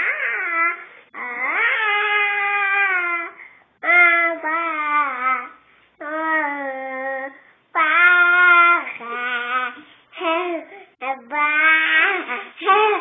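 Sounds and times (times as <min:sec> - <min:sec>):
child breathing: 0:03.3 - 0:03.8, 0:09.8 - 0:11.0.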